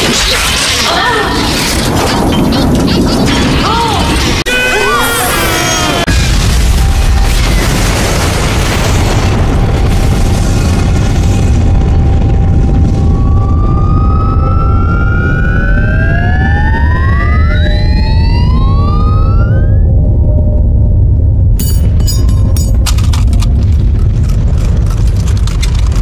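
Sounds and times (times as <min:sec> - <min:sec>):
huge explosion with deep rumble: 0:06.1 - 0:22.0, 0:22.7 - 0:26.0
rising whistling tones: 0:13.0 - 0:20.4.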